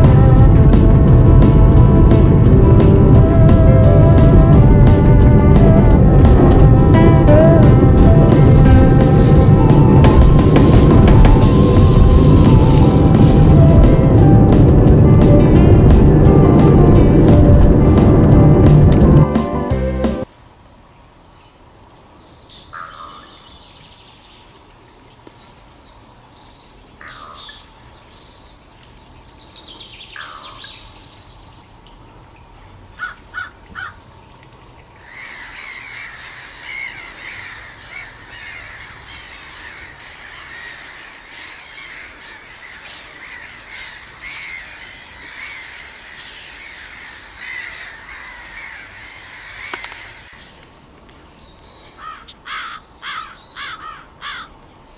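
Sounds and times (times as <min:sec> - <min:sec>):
harsh crow-like bird calls: 0:22.7 - 0:23.6, 0:27.0 - 0:27.7, 0:30.1 - 0:30.9, 0:33.0 - 0:34.1, 0:35.0 - 0:50.6, 0:51.8 - 0:54.6.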